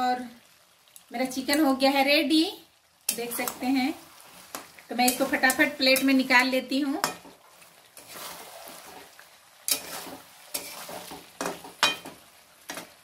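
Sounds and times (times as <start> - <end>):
oil sizzling: 0.0 - 13.0
metal spatula scraping pan: 4.2 - 6.3, 7.0 - 13.0.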